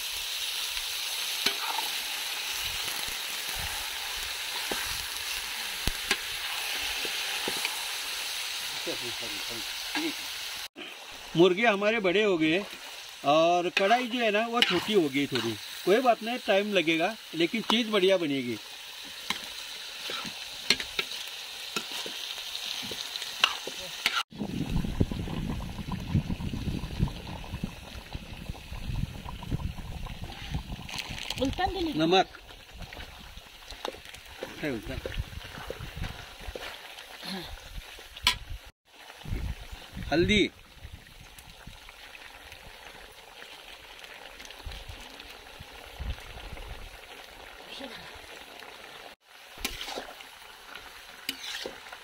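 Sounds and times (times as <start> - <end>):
crackly stirring noise: 0.0 - 10.2, 10.9 - 52.0
chicken sizzling in a pan: 0.0 - 52.0
ladle scraping a pan: 14.6 - 15.8, 19.0 - 21.2, 49.6 - 50.2, 51.2 - 51.9.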